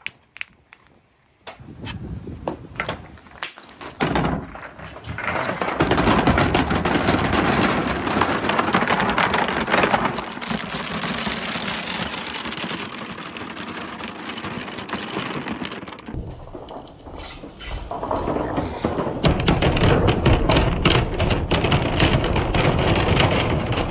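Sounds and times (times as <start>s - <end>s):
balls rolling down wooden chute: 0.0s - 1.6s, 2.4s - 23.9s
balls dropping into plastic tub: 2.4s - 16.2s.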